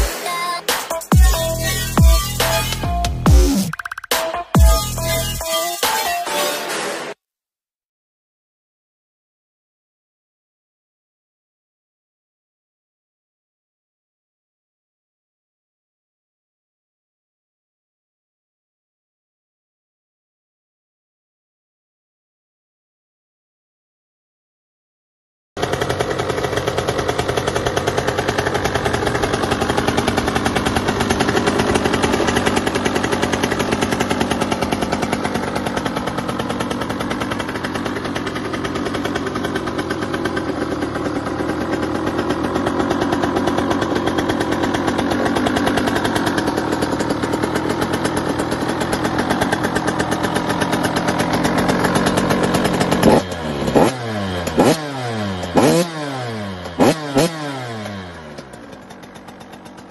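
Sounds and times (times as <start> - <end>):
motorbike engine running: 0.0 - 5.6, 25.6 - 59.9
motorbike engine revving: 25.6 - 59.9.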